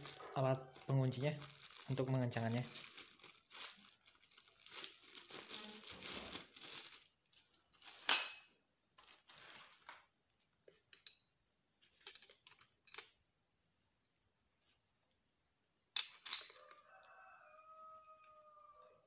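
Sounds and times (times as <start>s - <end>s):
plastic wrapping crinkling: 0.0s - 8.1s, 9.0s - 10.0s.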